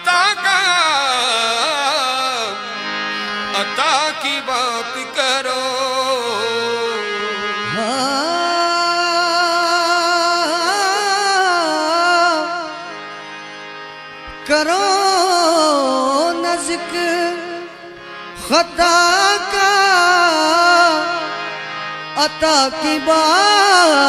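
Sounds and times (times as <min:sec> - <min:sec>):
singers with ornamented phrases: 0:00.0 - 0:12.8, 0:14.5 - 0:24.0
harmonium: 0:00.0 - 0:24.0.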